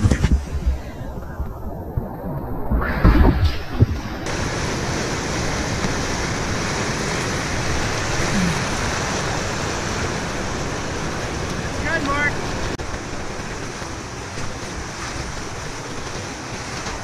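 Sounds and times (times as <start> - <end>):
low thumps: 0.0 - 4.3
muffled splashing: 0.0 - 17.0
whitewater rushing: 0.0 - 17.0.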